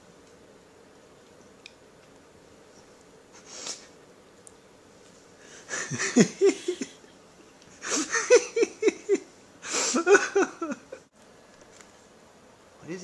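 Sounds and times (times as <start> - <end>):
person laughing: 5.7 - 7.1, 7.8 - 11.0.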